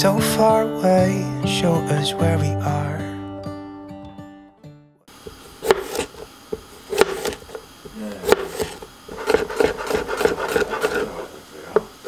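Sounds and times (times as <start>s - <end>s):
knife chopping on plastic board: 5.3s - 11.2s.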